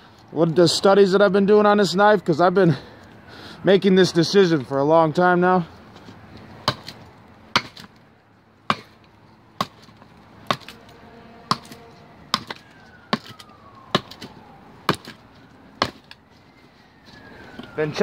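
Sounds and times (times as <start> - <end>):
knife chopping into wood: 6.6 - 7.9, 8.7 - 9.0, 9.6 - 10.8, 11.5 - 15.2, 15.8 - 16.2
distant siren wailing: 10.6 - 18.0.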